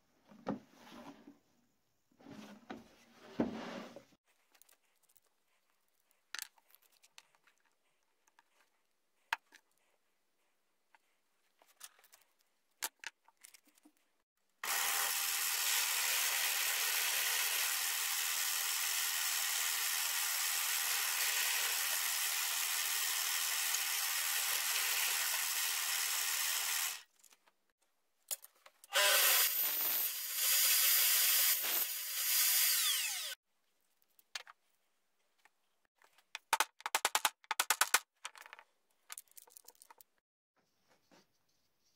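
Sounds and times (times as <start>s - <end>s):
power tool noise: 14.6s - 27.1s, 28.9s - 33.4s.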